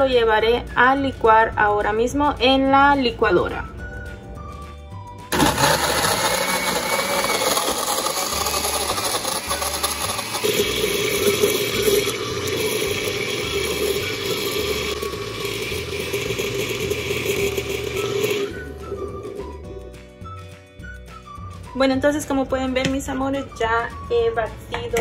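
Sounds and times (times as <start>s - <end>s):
blender chopping ice: 5.3s - 19.5s.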